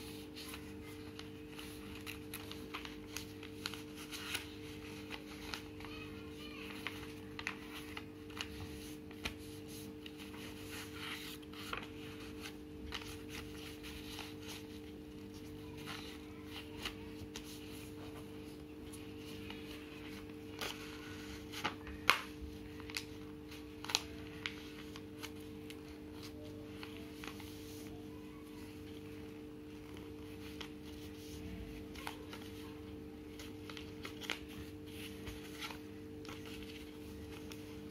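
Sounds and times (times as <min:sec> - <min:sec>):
paper crinkling and rustling: 0:00.0 - 0:37.9
loud paper crackle: 0:00.1 - 0:18.1, 0:33.3 - 0:37.9.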